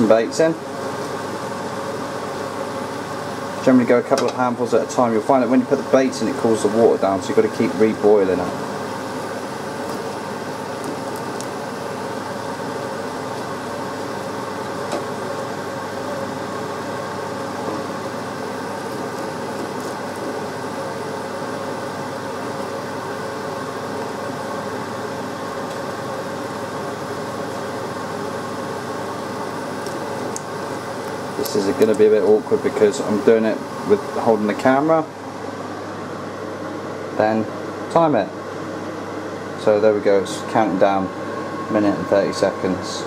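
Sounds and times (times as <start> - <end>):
water boiling in a pan: 0.0 - 37.1
extractor fan humming: 0.0 - 43.0.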